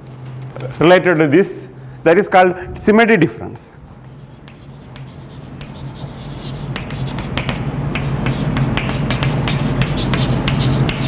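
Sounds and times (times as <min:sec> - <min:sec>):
steady low hum: 0:00.0 - 0:11.0
chalk tapping and scratching: 0:04.0 - 0:11.0.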